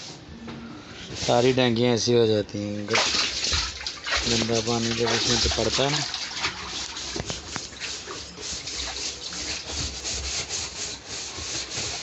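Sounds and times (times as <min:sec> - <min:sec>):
scrubbing plastic tank wall: 0:02.8 - 0:12.0.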